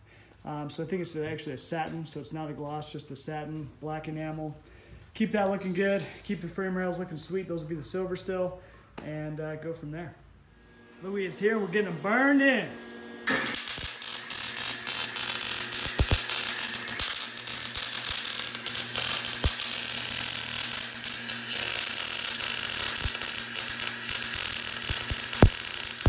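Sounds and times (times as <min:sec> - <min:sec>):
welder crackling: 0:13.2 - 0:26.0
sharp welding pops: 0:13.3 - 0:26.0.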